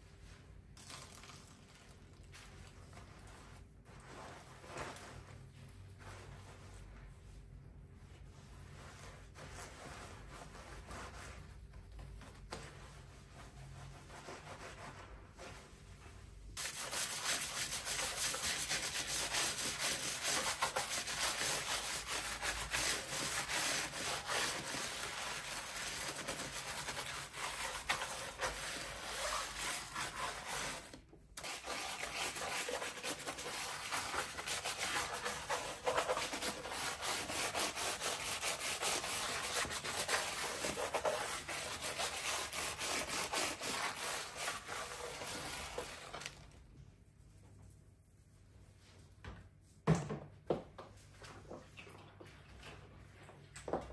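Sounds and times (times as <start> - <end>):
brush scrubbing keyboard: 16.6 - 46.0.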